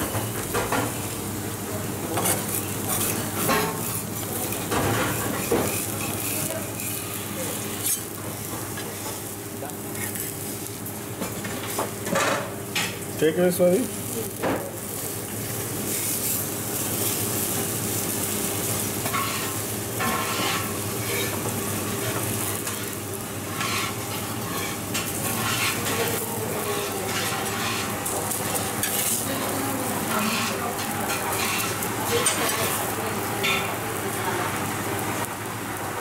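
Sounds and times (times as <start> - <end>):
dosa sizzling on a griddle: 0.0 - 13.0, 13.6 - 36.0
metal spatula scraping: 19.1 - 21.4, 23.5 - 26.0, 26.8 - 28.0, 30.2 - 32.6.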